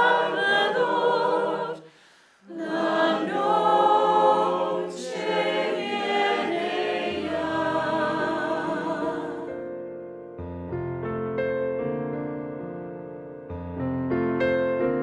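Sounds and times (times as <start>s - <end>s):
choir singing a hymn: 0.0s - 9.9s.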